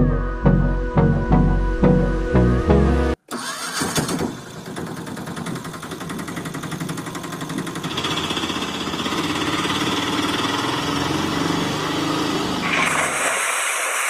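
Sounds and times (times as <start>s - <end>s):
small engine running: 3.3s - 14.0s.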